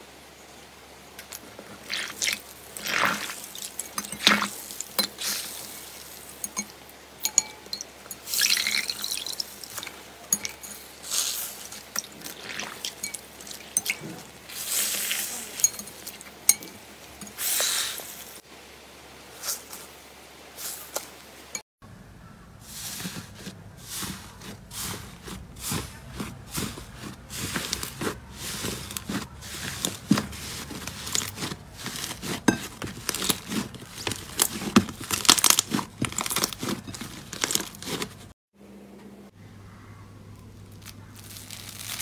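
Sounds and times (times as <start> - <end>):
wet squelching foam toy: 1.4 - 6.5, 8.2 - 16.4, 22.6 - 38.3.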